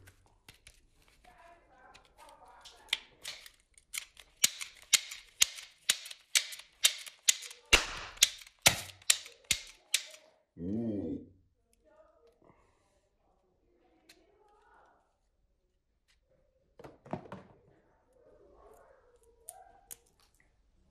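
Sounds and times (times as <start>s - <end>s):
toy revolver trigger clicks: 2.8s - 10.2s.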